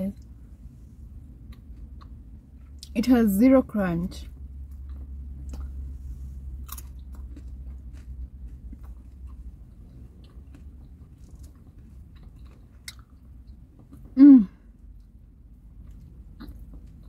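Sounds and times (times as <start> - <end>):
chewing fried chicken: 4.4 - 14.2, 14.8 - 17.0.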